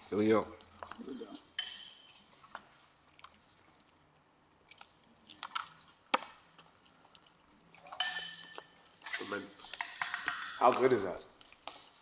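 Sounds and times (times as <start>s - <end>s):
person chewing food: 0.7s - 10.0s, 11.3s - 12.0s.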